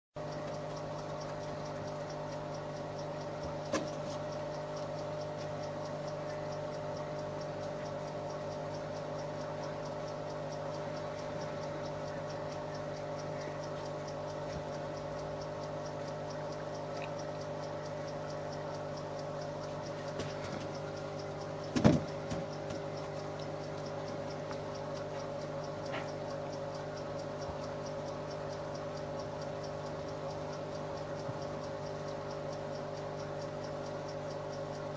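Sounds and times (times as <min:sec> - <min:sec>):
faint regular ticking: 0:00.2 - 0:34.9
low mechanical hum: 0:00.2 - 0:34.9
sharp knock: 0:21.8 - 0:22.0.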